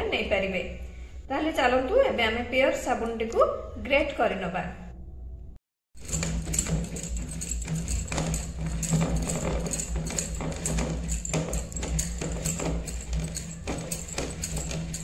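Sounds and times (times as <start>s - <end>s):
soap rasping on a metal grater: 6.0s - 15.0s.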